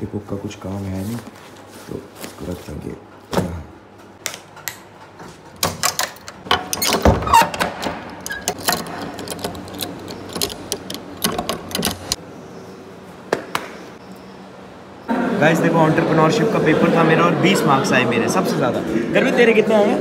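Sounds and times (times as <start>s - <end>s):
metal bolt rattling: 5.6s - 12.2s
padlock clicking shut: 5.6s - 12.2s.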